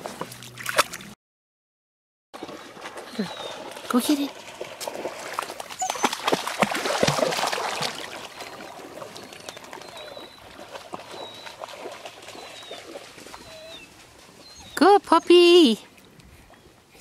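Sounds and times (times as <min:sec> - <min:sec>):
dog splashing into water: 0:02.4 - 0:13.4
dog paddling in water: 0:02.4 - 0:17.0.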